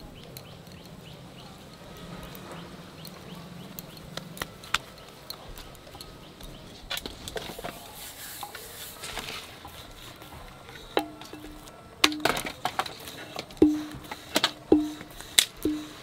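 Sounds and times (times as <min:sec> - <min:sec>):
soft scraping hiss: 0:00.0 - 0:16.0
rolling pin knocking on stone: 0:13.5 - 0:16.0.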